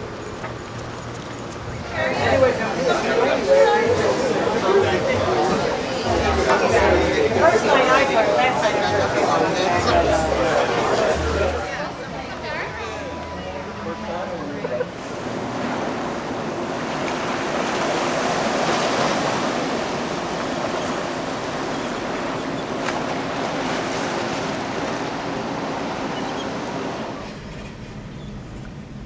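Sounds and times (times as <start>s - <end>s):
waves washing against rocks: 15.0s - 27.2s.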